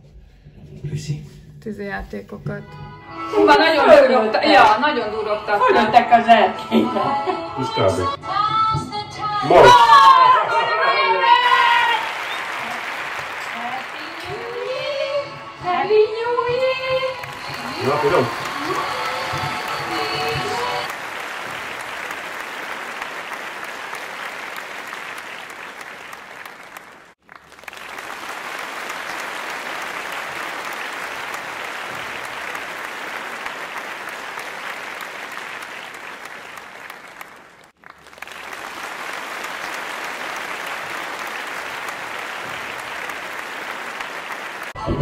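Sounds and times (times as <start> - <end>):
steady applause: 9.4 - 45.0.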